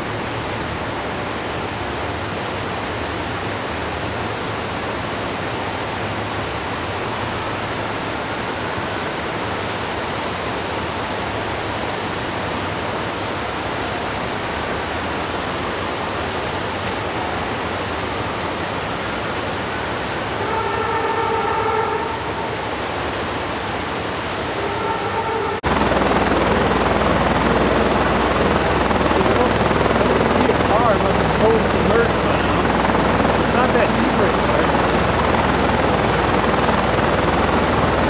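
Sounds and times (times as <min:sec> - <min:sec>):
helicopter hovering: 0:00.0 - 0:38.0
river rapids rushing: 0:00.0 - 0:38.0
horn-like tone: 0:20.3 - 0:22.7, 0:24.5 - 0:25.6.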